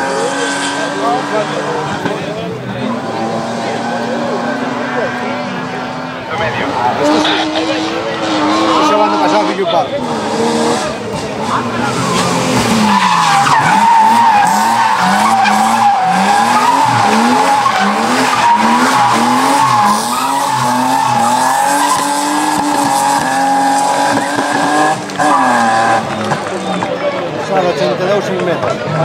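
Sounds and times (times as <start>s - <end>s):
race car engine revving: 0.0s - 29.0s
tyres squealing: 11.4s - 26.9s.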